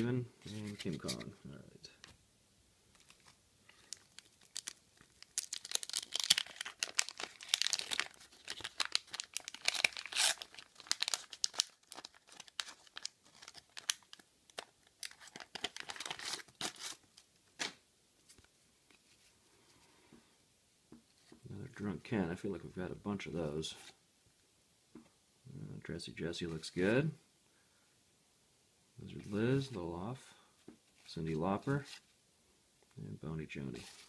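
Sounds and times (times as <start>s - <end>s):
wax paper wrapper crinkling: 2.9s - 19.3s.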